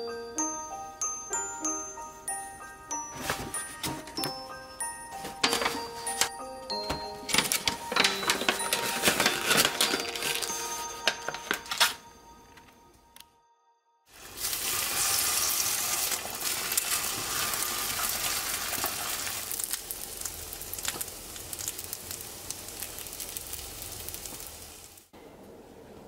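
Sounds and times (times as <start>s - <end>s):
food sizzling in frying pan: 14.1s - 25.1s.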